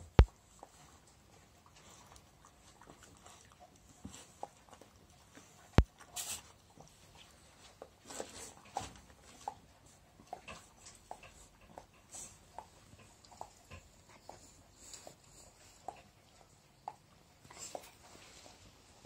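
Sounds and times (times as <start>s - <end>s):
dog chewing and licking: 0.1s - 19.0s.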